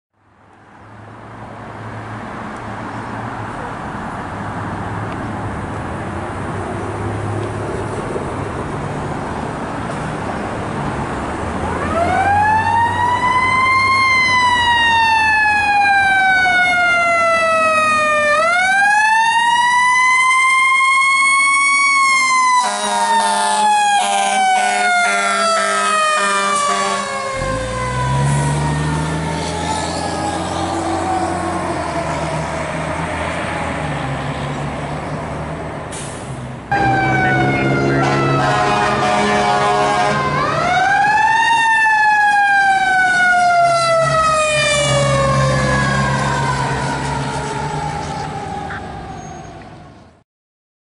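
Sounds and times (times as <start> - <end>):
fire engine rumbling: 2.7 - 50.2
horn blasts: 22.6 - 27.6, 36.7 - 40.6.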